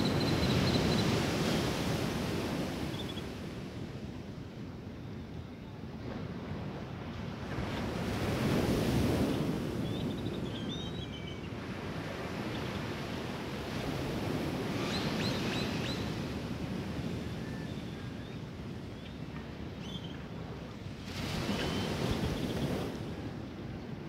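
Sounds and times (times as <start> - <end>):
surf washing onto a beach: 20.2 - 24.0.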